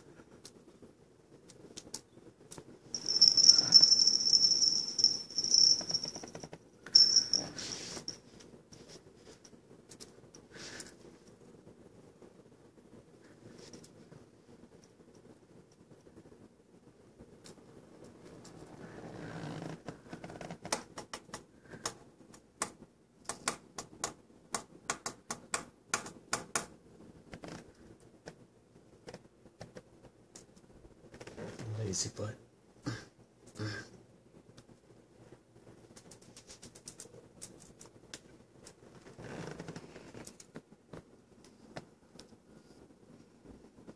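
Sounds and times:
faint clicks and ticks: 0:00.0 - 0:07.4, 0:09.4 - 0:18.8, 0:19.7 - 0:31.4, 0:34.4 - 0:43.9
soft rustling: 0:00.0 - 0:15.0, 0:35.2 - 0:43.9.

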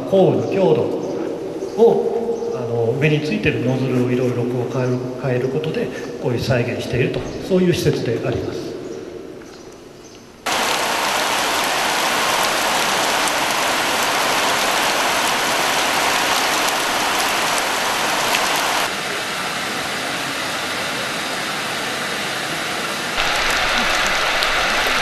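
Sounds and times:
heavy rain pouring onto water: 0:10.4 - 0:25.0.

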